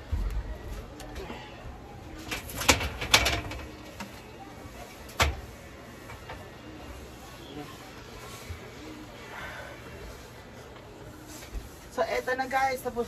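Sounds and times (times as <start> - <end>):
knocks and clanks on steel shelving: 2.2 - 3.7.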